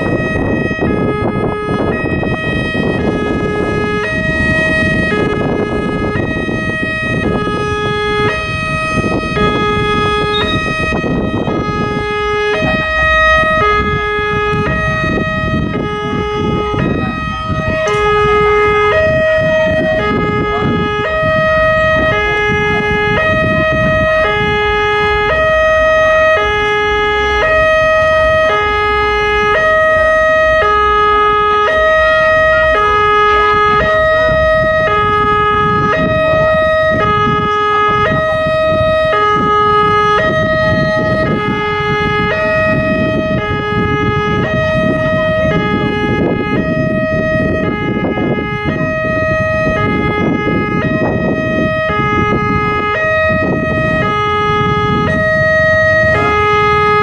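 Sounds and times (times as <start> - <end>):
level-crossing two-tone alarm: 0.0 - 57.0
low rumbling noise: 0.0 - 57.0
steady high tone: 9.4 - 15.3, 16.6 - 23.0, 54.9 - 57.0.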